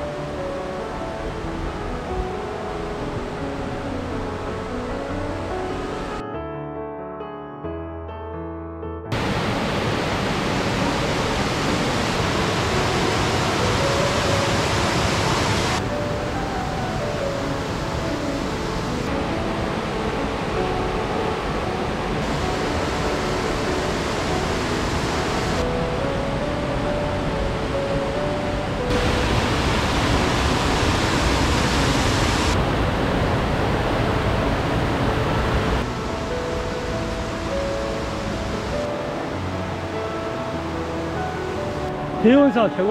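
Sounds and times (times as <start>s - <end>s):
stream rushing over rocks: 9.2s - 25.7s, 28.7s - 42.9s.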